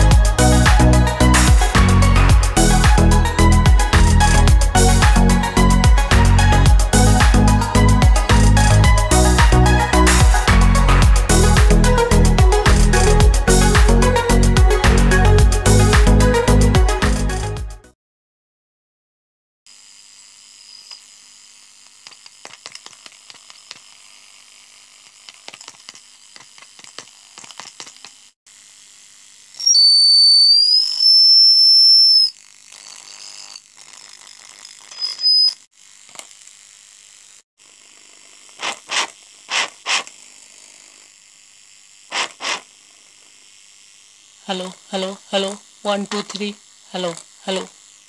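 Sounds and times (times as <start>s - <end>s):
crackles from handling microphone wires: 25.2s - 28.4s
high-pitched feedback squeal: 29.6s - 32.4s, 34.9s - 35.6s.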